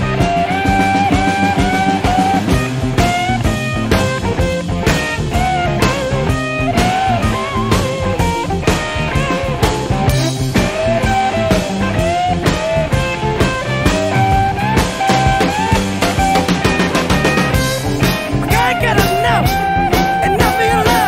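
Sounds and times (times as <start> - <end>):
bass: 0.0 - 21.0
electric guitar bending notes: 0.0 - 21.0
drum beat: 13.9 - 21.0.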